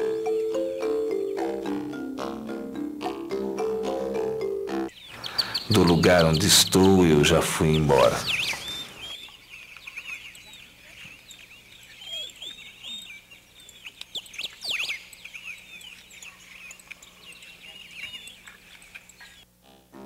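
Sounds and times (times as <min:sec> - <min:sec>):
small birds chirping: 0:04.9 - 0:19.5.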